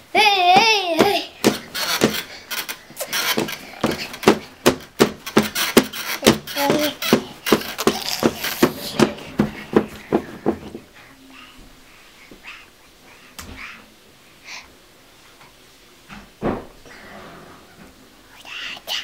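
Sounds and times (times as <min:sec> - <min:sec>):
children tapping on playpen: 0:00.2 - 0:10.9
faint child voice: 0:06.5 - 0:07.2.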